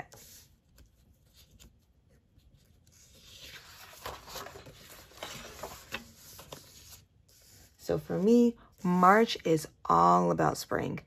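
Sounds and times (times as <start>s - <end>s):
paper pages rustling: 0.1s - 8.5s.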